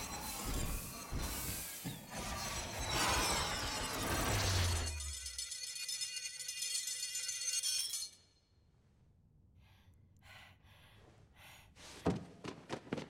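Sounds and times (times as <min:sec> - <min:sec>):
shimmering metallic chiming: 0:00.0 - 0:08.6.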